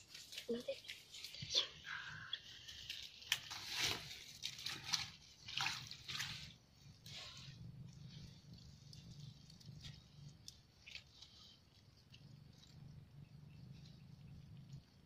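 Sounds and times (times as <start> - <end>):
low steady hum: 1.3 - 15.0
hands pulling twigs in mud: 2.4 - 6.6.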